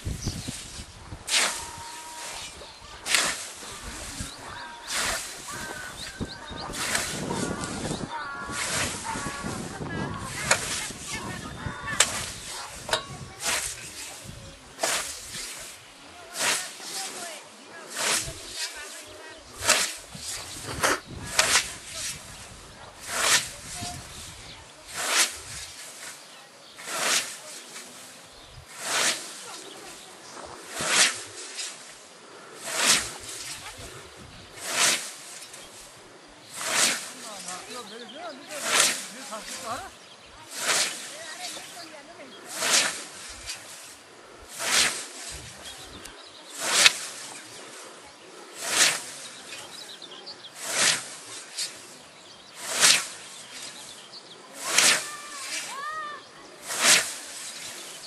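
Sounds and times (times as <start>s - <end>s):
scythe swishing through grass: 0.0s - 58.0s.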